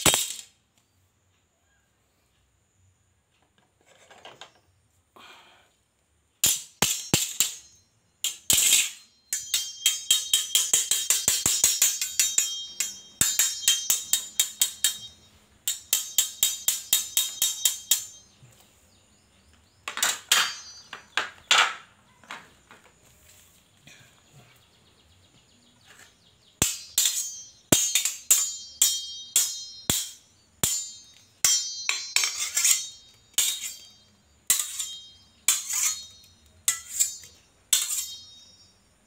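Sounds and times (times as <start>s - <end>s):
machete blades clashing: 0.0s - 0.5s, 6.4s - 18.4s, 19.9s - 21.8s, 26.6s - 38.7s
soft handling sounds: 22.3s - 24.6s.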